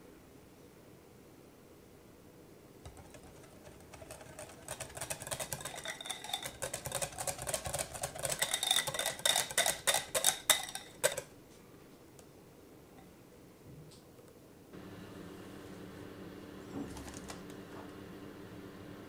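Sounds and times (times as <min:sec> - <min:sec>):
whisk clicking against glass bowl: 0:02.9 - 0:11.3.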